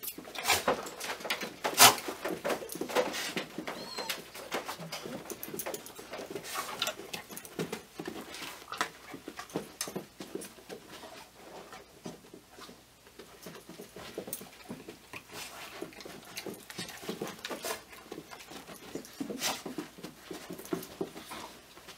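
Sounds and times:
dog whining: 3.6 - 5.4.

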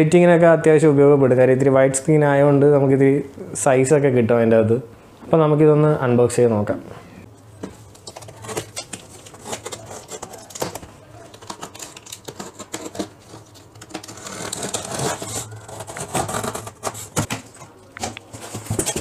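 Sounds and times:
cardboard box being handled: 7.6 - 19.0
box cutter slicing tape and cardboard: 11.4 - 17.4.

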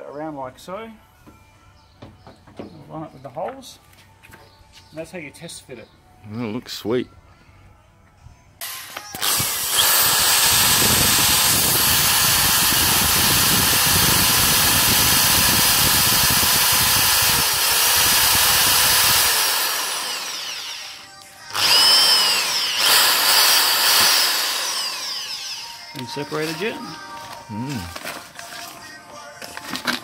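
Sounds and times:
power drill boring plastic: 8.6 - 26.7.

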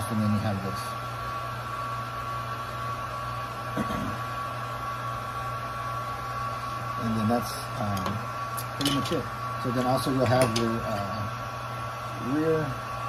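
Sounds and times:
electric blower motor humming: 0.5 - 13.0.

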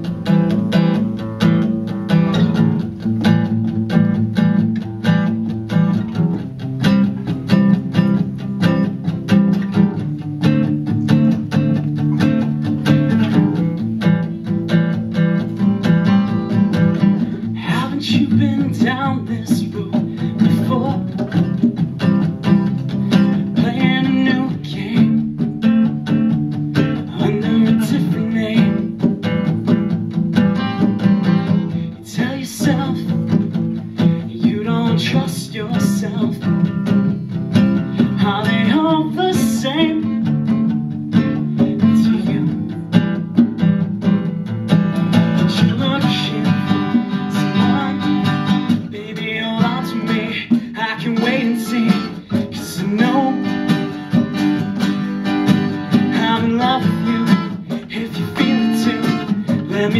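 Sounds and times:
acoustic guitars strummed: 0.0 - 59.9
man singing into a microphone: 17.4 - 21.4, 23.3 - 25.3, 27.0 - 29.1, 31.7 - 33.4, 34.0 - 36.8, 37.9 - 40.3, 41.6 - 42.8, 45.3 - 54.0, 55.9 - 59.9.

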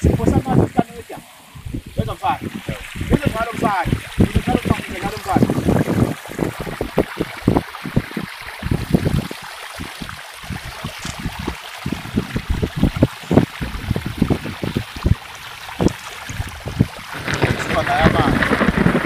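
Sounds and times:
steady hiss: 0.0 - 5.5
wind buffeting microphone: 0.0 - 19.0.

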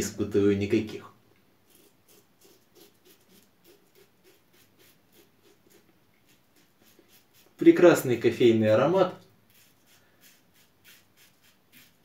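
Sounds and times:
razor scraping stubble: 1.7 - 7.9, 9.5 - 12.0.

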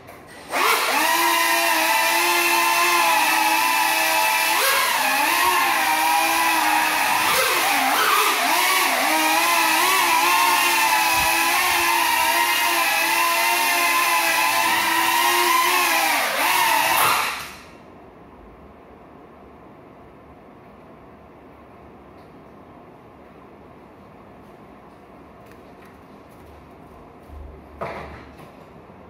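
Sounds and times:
quadcopter motors whining: 0.4 - 17.7.

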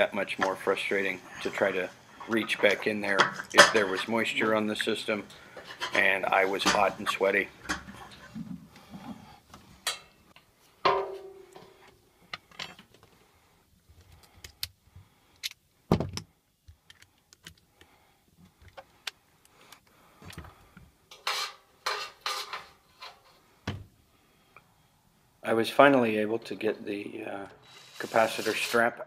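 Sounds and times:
tools clicking and clanking on metal: 1.4 - 8.4, 9.8 - 10.2, 10.9 - 13.0, 21.1 - 23.2.

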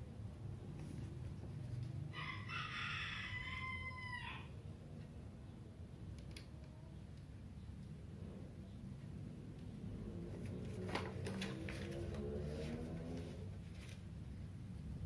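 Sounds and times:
rooster crowing: 2.1 - 4.6
low steady rumble: 4.0 - 15.0.

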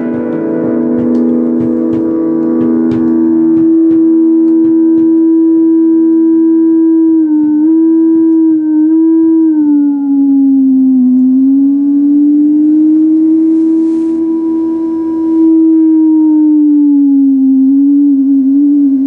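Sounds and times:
sustained guitar note sliding: 0.0 - 8.9, 11.6 - 16.5.

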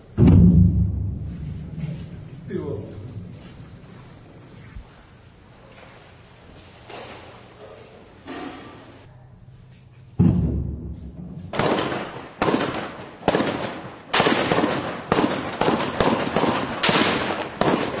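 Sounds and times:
heavy low blast: 0.0 - 4.4, 10.2 - 12.2
echoing gunshots: 10.2 - 18.0.

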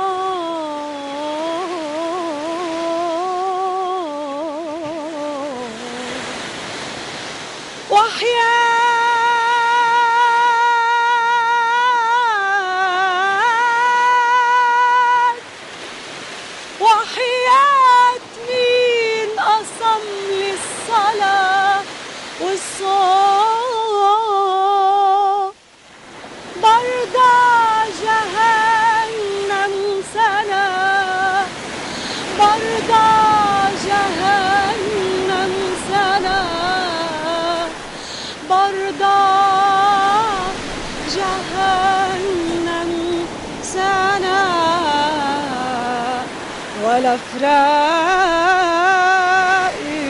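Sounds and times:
woman singing wordless melody: 0.0 - 50.0
steady rushing noise: 31.0 - 47.5.

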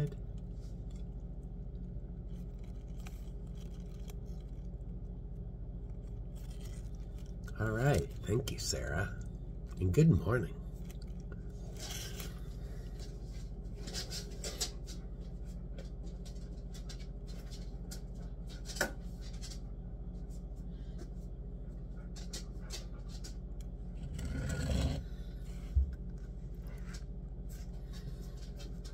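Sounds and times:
steady low hum: 0.0 - 28.9
rubbing scrape: 24.0 - 25.0.

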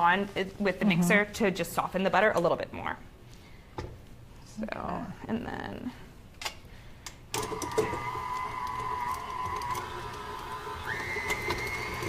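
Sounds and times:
stand mixer motor whine: 7.4 - 12.0.

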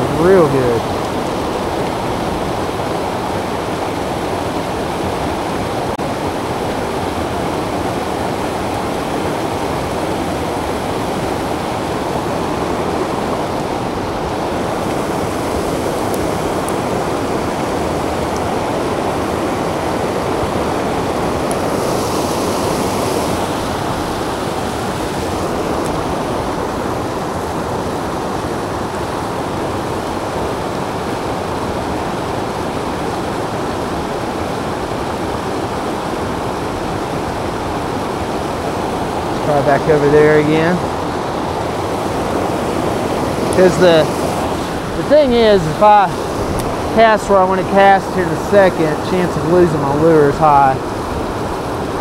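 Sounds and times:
creek pouring over rocks: 0.0 - 52.0
brighter hiss: 42.3 - 50.8.

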